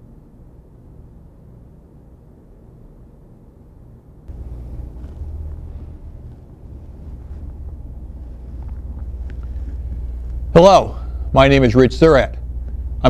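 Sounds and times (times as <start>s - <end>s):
low rumble: 4.3s - 13.0s.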